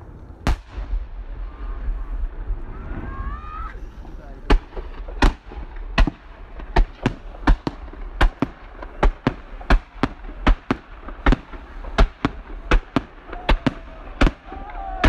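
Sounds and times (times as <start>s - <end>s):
low rumble: 0.0s - 8.7s
fireworks bangs: 0.4s - 15.0s.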